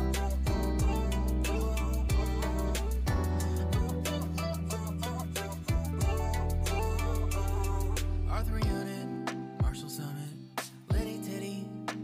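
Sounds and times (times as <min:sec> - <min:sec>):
instrumental pop music: 0:00.0 - 0:12.0.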